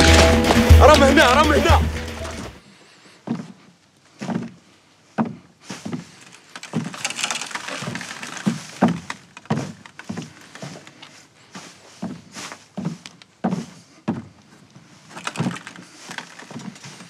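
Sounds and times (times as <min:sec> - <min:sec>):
footsteps on wooden boards: 0:00.0 - 0:17.0
feet scuffing: 0:03.2 - 0:04.6, 0:05.2 - 0:07.0, 0:08.4 - 0:17.0.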